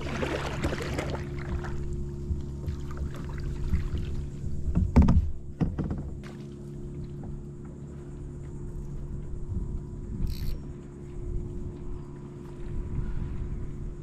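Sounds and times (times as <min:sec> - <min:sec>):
steady low hum: 0:00.0 - 0:14.0
knocks and thumps on a kayak: 0:00.6 - 0:07.8.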